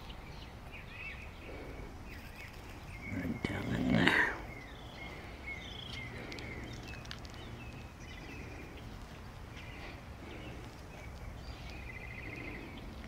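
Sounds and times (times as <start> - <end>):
low outdoor hum: 0.0 - 13.0
small birds chirping: 0.0 - 13.0
faint clicks: 5.9 - 7.8.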